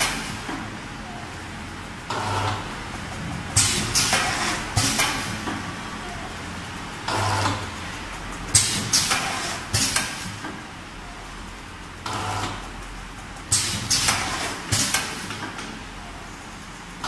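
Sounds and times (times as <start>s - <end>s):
machine clacks and hisses: 0.0s - 0.8s, 2.0s - 10.8s, 11.4s - 17.0s
packing machine low hum: 0.0s - 11.2s.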